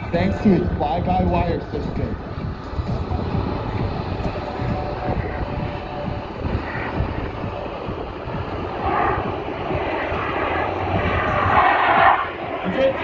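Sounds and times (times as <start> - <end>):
jet engine rushing: 0.0 - 13.0.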